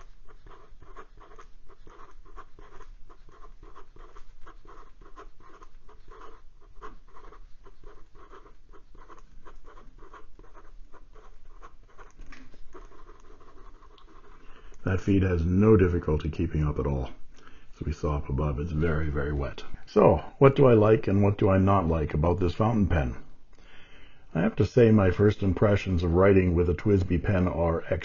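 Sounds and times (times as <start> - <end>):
pen scratching on paper: 0.0 - 16.1.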